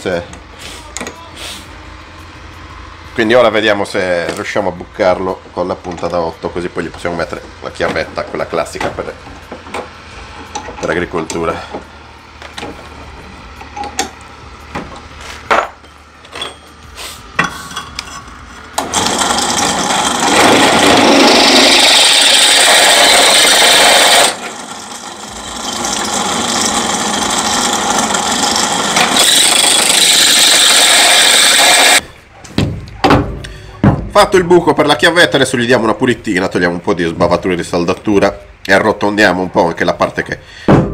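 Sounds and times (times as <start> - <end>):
drill press boring through steel: 18.8 - 32.0.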